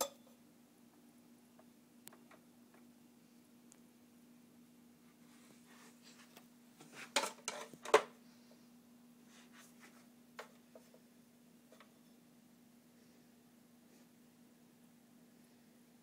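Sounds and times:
handling rustles and knocks: 5.4s - 8.2s
steady low hum: 8.1s - 16.0s.

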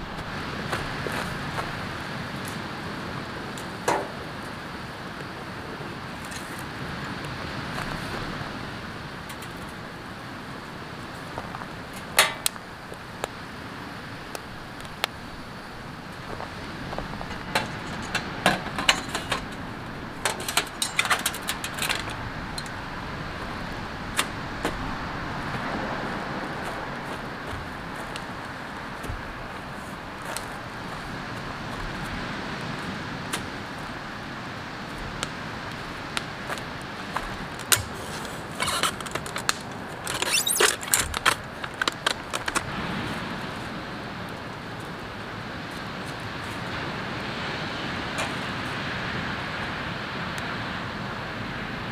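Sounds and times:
campfire crackling and popping: 34.9s - 42.8s.

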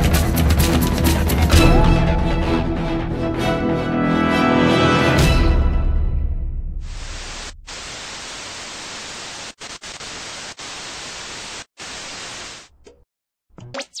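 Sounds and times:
television static hiss: 7.1s - 12.6s.

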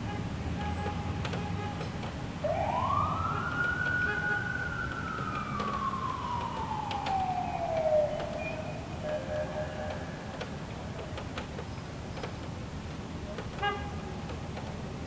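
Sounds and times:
emergency siren wailing: 0.8s - 11.2s.

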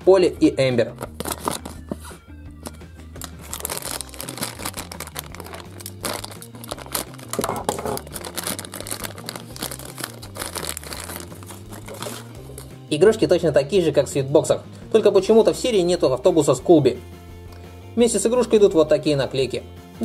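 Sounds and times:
background music: 0.0s - 20.0s
plastic wrapper crinkling and tearing: 1.0s - 12.8s.

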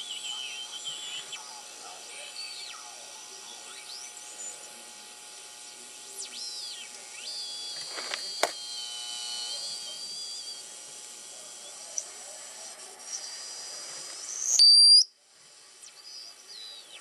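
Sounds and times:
radio band hiss: 0.0s - 17.0s
radio whistling tones: 6.2s - 15.1s
sharp click: 7.8s - 8.6s
loud high steady whistle: 14.3s - 15.1s.

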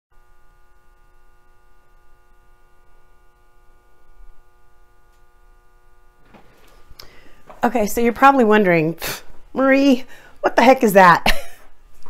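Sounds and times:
faint electronic hum: 0.2s - 12.0s.

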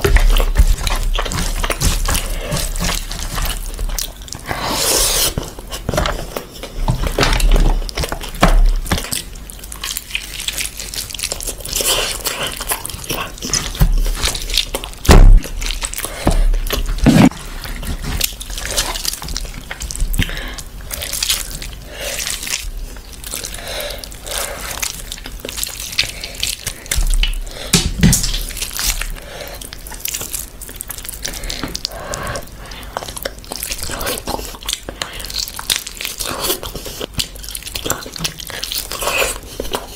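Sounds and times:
hands squelching oily rice: 0.0s - 5.9s
chewing and lip smacks: 0.0s - 39.9s.

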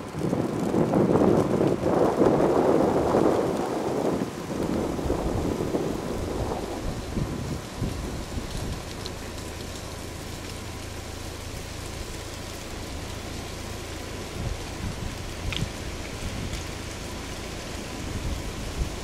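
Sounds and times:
wind noise on microphone: 0.0s - 10.3s, 13.8s - 19.0s.

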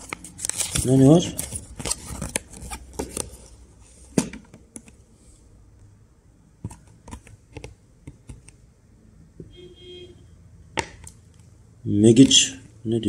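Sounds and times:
paper card crinkling: 0.0s - 3.4s.

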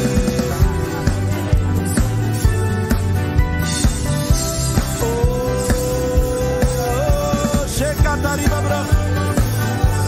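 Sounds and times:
slow worship music: 3.7s - 10.0s.

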